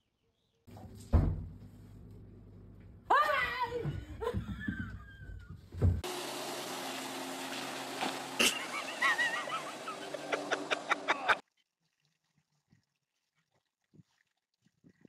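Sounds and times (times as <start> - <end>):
speedboat engine running: 6.0 - 11.4.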